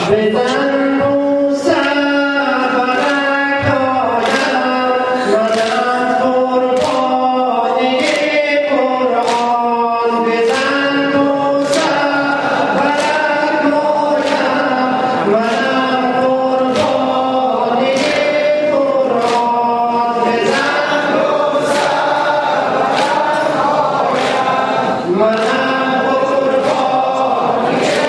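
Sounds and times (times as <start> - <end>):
lead voice singing a lament: 0.0 - 28.0
chest-beating slaps: 5.4 - 5.9, 11.6 - 13.3, 17.8 - 19.7, 20.5 - 24.6.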